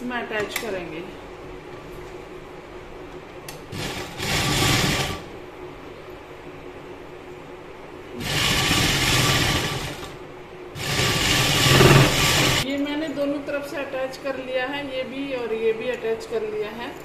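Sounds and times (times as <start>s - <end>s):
sewing machine stitching: 3.7s - 5.3s, 8.2s - 10.2s, 10.8s - 12.6s.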